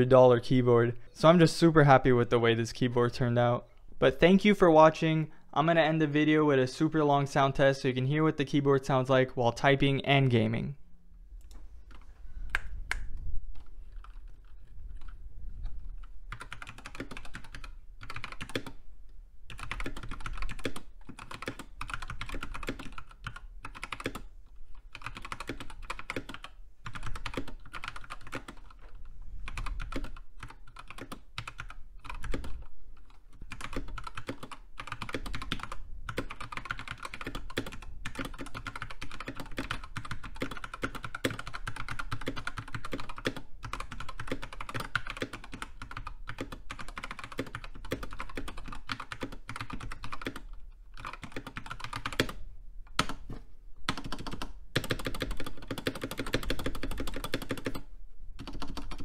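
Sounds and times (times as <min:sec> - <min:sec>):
mechanical keyboard typing: 0:13.6 - 0:15.2, 0:16.0 - 0:18.8, 0:19.5 - 0:28.8, 0:29.5 - 0:53.2, 0:53.9 - 0:59.0.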